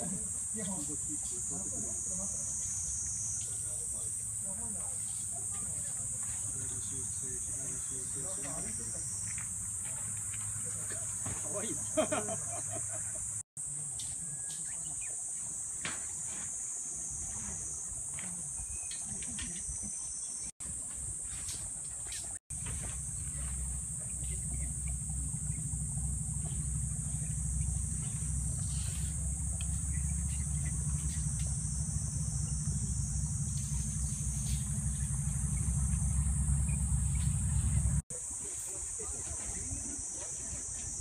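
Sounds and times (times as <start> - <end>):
insect chorus buzzing: 0.0 - 41.0
low rumble: 22.6 - 38.0.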